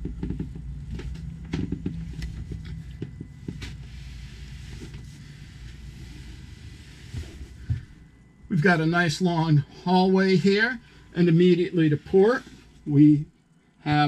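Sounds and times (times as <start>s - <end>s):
low hum: 0.0s - 14.0s
footsteps on carpeted stairs: 7.0s - 8.0s.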